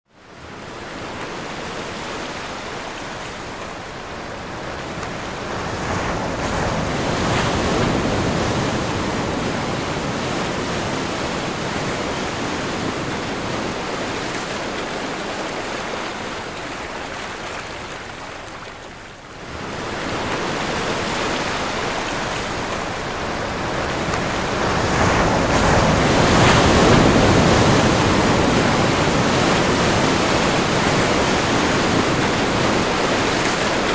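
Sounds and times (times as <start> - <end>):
strong wind: 0.2 - 18.2, 19.3 - 33.9
heavy waves breaking: 0.2 - 33.9.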